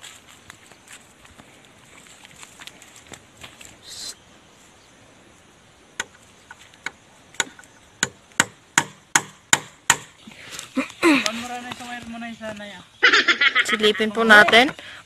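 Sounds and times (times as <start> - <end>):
sharp knocks on bamboo: 6.0 - 10.2.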